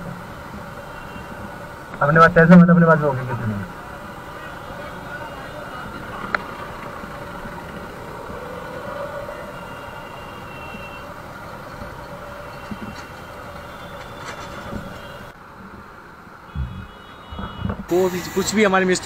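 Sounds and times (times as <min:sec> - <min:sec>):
motorcycle and scooter engines: 0:00.0 - 0:19.0
road noise: 0:00.0 - 0:19.0.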